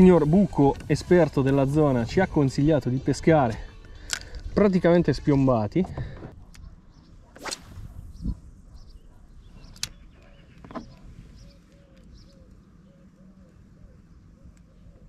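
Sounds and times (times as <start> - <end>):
fishing rod swishing through air: 7.3 - 8.4.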